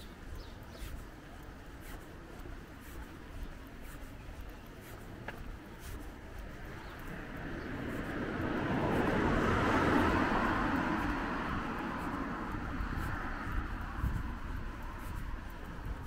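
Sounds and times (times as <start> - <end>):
car passing by: 6.5 - 16.0.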